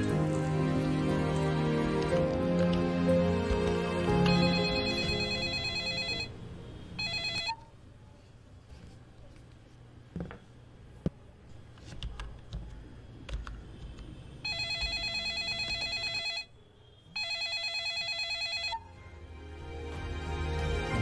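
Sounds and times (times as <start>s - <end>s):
warbling electronic ringtone: 4.1s - 6.3s, 7.0s - 7.6s, 14.4s - 16.5s, 17.2s - 18.9s.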